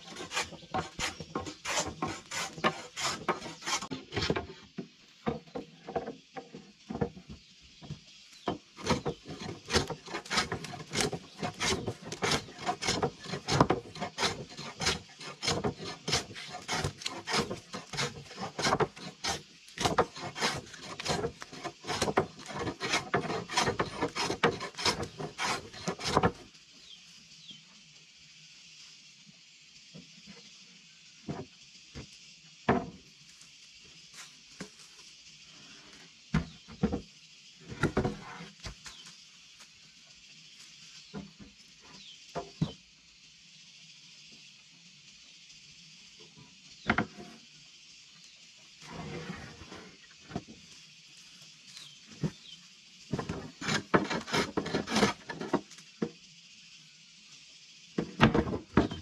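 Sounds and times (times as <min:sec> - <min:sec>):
hand tool rasping wood: 0:00.0 - 0:04.6, 0:08.8 - 0:26.4, 0:53.1 - 0:55.6.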